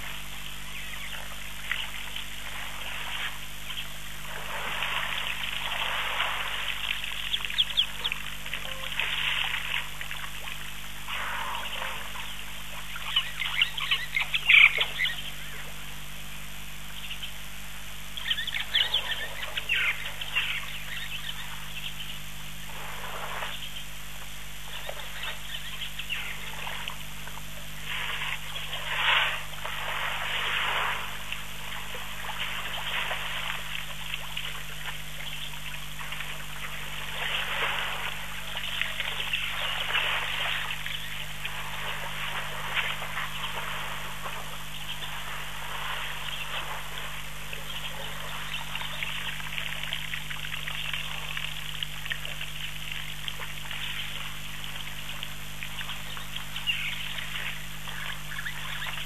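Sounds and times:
low hum: 0.0 - 59.0
water splashing and trickling: 26.3 - 59.0.

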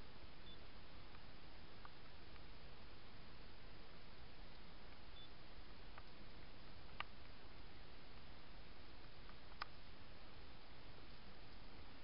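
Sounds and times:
microphone hiss: 0.0 - 12.0.

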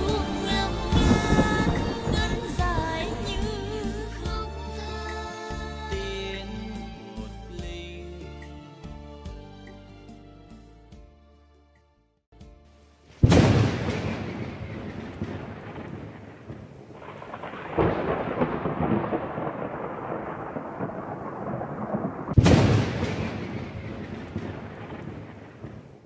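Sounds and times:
thunder claps with rumble: 0.0 - 3.6, 13.2 - 26.0.

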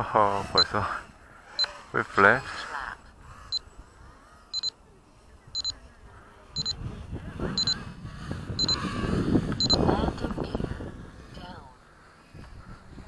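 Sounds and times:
wind buffeting microphone: 5.3 - 13.0
short high beeps: 5.6 - 5.8, 6.6 - 6.8, 9.6 - 9.8.

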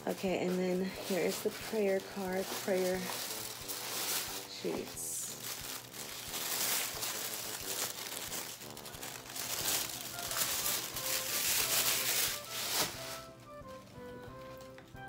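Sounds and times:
soft background music: 0.0 - 15.0
tissue paper crinkling: 0.0 - 15.0.

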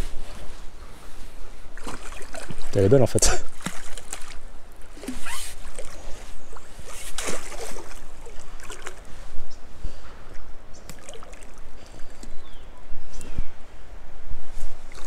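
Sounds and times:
water splashing and sloshing: 0.0 - 9.5, 10.2 - 12.3, 14.6 - 15.0.

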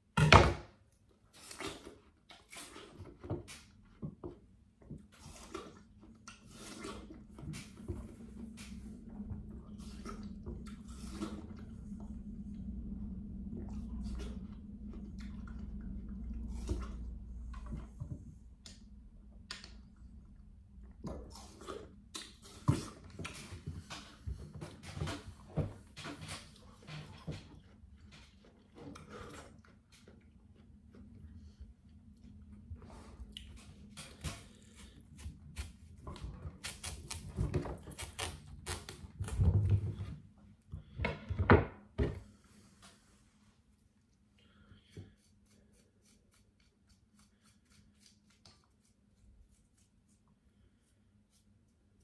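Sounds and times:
low steady hum: 3.0 - 52.0
chewing juicy watermelon: 5.0 - 12.3, 20.9 - 25.5, 26.2 - 39.4
watermelon cracking on board: 34.0 - 39.4.

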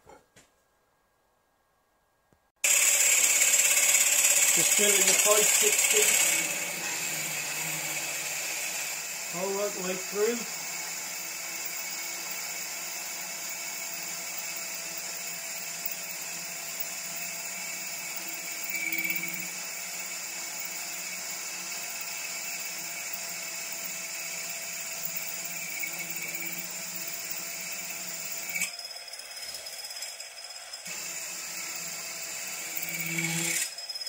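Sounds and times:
drill cutting metal: 2.6 - 34.0
milling machine spindle running: 2.6 - 34.0.

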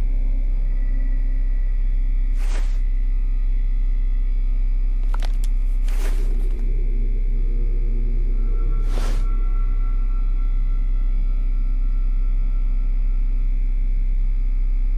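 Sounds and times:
deep ambient drone: 0.0 - 14.9
faint held tones: 0.0 - 14.9
soft whooshes: 2.4 - 2.8, 8.8 - 9.4.

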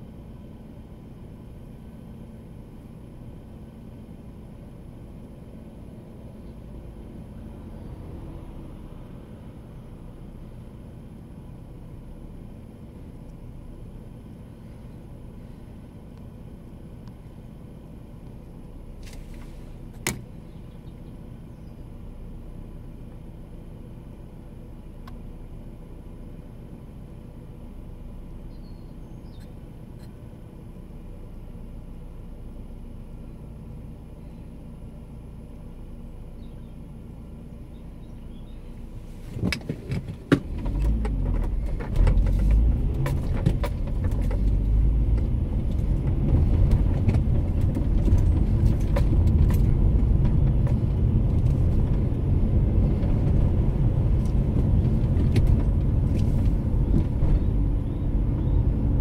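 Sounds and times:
car engine idling: 0.0 - 59.0
engine and road noise rumble: 0.0 - 59.0.

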